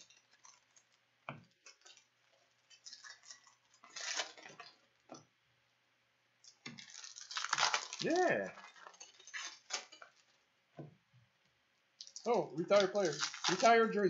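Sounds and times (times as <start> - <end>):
trading cards rustling and clicking: 12.0 - 13.9.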